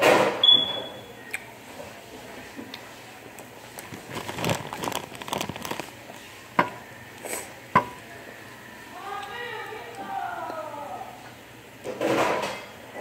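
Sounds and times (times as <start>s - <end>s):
plastic crinkling: 3.4s - 6.4s.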